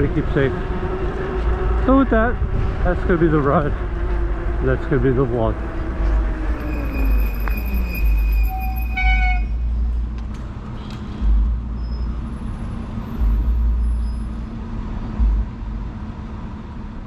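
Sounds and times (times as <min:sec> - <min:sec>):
wind rumbling on microphone: 0:00.0 - 0:08.3
low hum of road traffic: 0:00.0 - 0:17.0.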